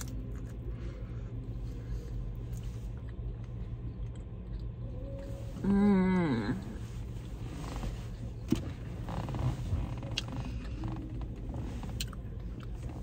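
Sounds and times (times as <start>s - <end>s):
person chewing: 0.0s - 5.4s, 11.9s - 12.9s
low steady rumble: 0.0s - 13.0s
person humming mmm: 5.1s - 6.8s.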